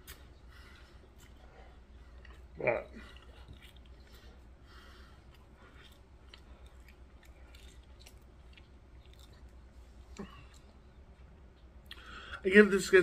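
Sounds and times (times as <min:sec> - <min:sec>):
soft mouth clicks: 0:00.0 - 0:00.3, 0:11.8 - 0:12.1
man chewing food: 0:00.0 - 0:12.4.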